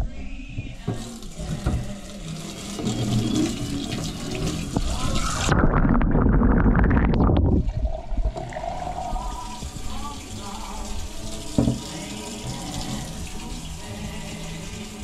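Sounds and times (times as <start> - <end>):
tap water running into sink: 0.8 - 5.5, 7.9 - 15.0
water filling plastic beaker: 0.8 - 15.0.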